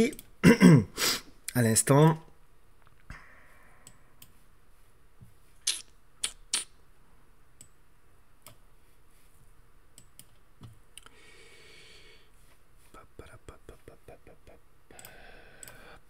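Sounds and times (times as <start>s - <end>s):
computer mouse clicks: 15.0s - 15.8s.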